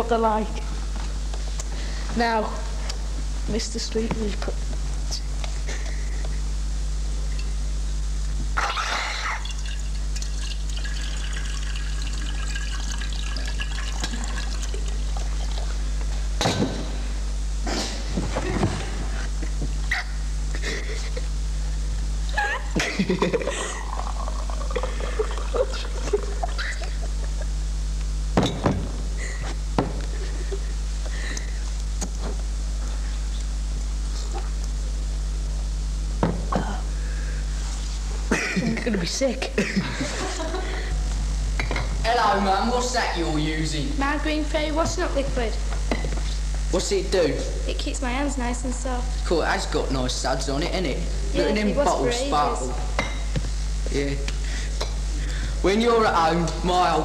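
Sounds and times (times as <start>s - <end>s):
low electrical hum: 0.0s - 57.0s
tea pouring into cup: 9.2s - 15.8s, 23.6s - 26.5s.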